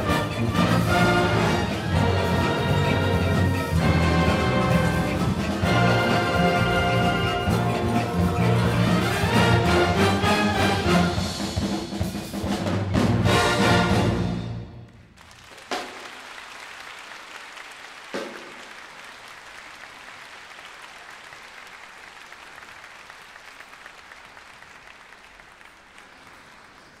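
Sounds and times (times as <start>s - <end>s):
audience applauding: 0.0s - 11.2s, 14.9s - 27.0s
wind band chord: 0.0s - 11.4s.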